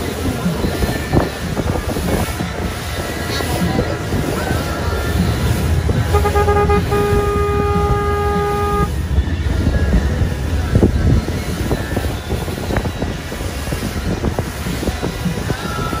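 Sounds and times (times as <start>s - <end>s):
water rumble from moving boat: 0.0s - 16.0s
wind: 0.0s - 16.0s
boat horn blasts: 4.5s - 9.7s.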